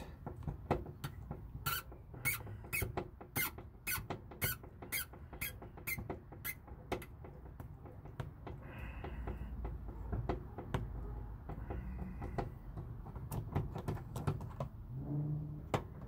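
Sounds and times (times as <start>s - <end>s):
screwdriver turning a screw: 0.4s - 8.5s
screw squeaking chirps: 1.0s - 8.2s.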